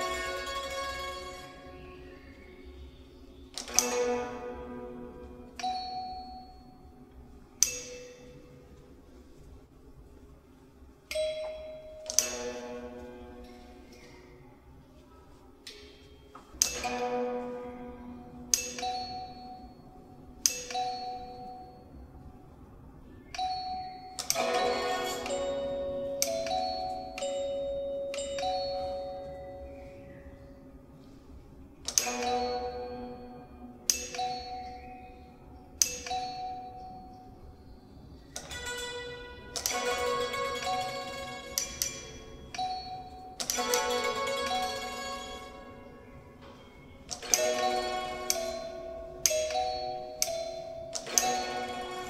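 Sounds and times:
hammered dulcimer notes: 0:00.0 - 0:02.4, 0:03.6 - 0:08.7, 0:11.1 - 0:14.1, 0:16.6 - 0:21.9, 0:23.4 - 0:30.2, 0:31.9 - 0:35.1, 0:38.4 - 0:52.0.

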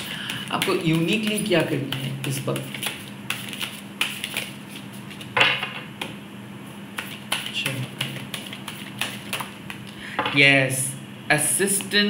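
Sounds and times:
cards clicking and tapping: 0:00.0 - 0:06.2, 0:07.0 - 0:10.0.

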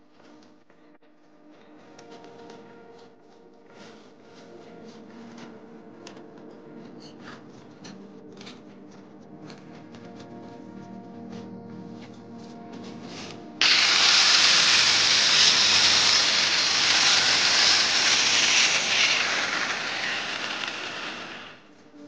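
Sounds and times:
power tool grinding wall: 0:13.6 - 0:21.7.

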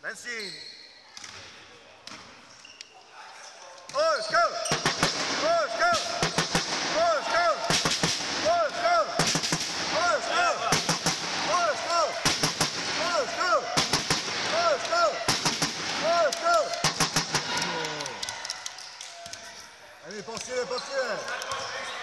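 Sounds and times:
sneakers squeaking on floor: 0:00.2 - 0:01.5, 0:02.1 - 0:05.0, 0:20.4 - 0:22.0.

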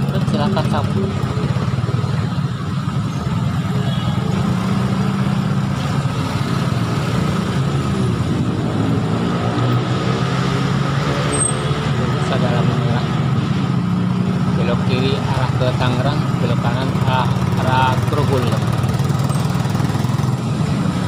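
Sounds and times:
motorcycle engine idling: 0:00.0 - 0:04.2, 0:14.6 - 0:20.4
traffic engines rumbling: 0:00.0 - 0:21.0.

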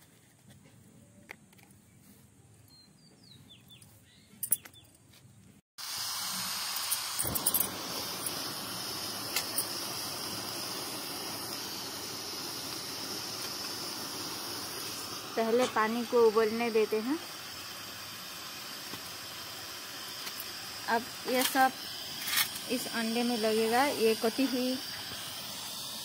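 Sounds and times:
gas burner hissing: 0:05.8 - 0:26.0.

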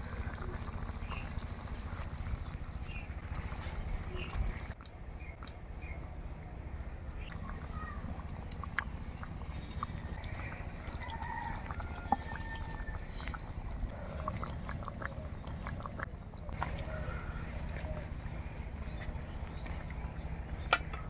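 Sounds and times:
curry bubbling with small pops: 0:00.0 - 0:04.9, 0:07.2 - 0:16.9.

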